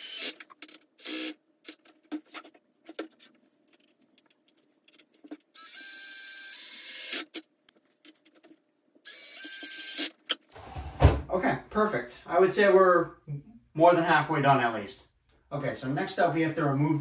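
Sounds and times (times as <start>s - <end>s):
cordless drill driving screws: 0.0s - 0.4s, 9.1s - 10.1s.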